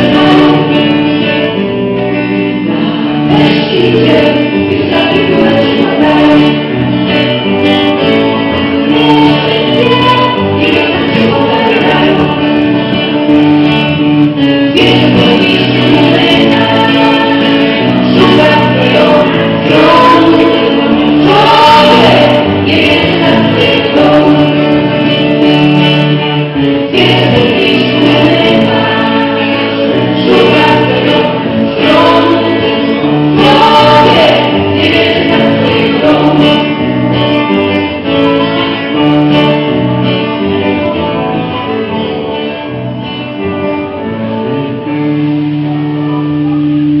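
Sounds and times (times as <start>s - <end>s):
women singing in harmony: 0.0s - 1.0s, 3.1s - 13.0s, 14.7s - 25.8s, 26.8s - 37.3s
guitars: 0.0s - 47.0s.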